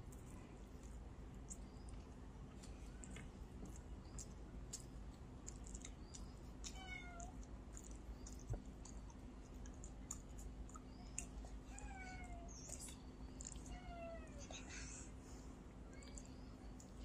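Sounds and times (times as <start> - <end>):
cat meowing: 6.7 - 7.3.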